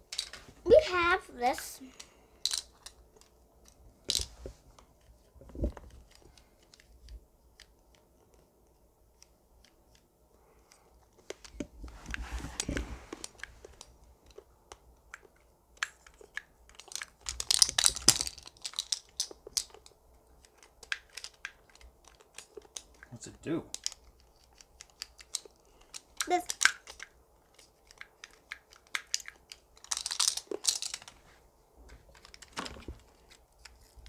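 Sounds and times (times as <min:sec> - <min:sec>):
plastic toy clicks and taps: 0:23.7 - 0:31.0.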